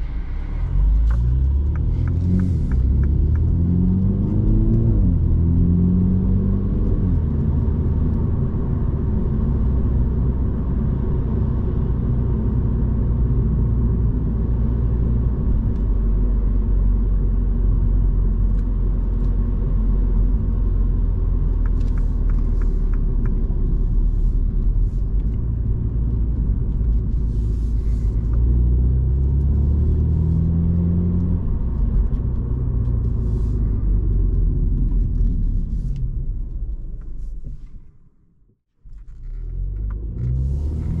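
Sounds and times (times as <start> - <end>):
car engine cruising: 0.0 - 38.1, 38.9 - 41.0
tyre and road rumble: 11.7 - 38.1, 38.8 - 41.0.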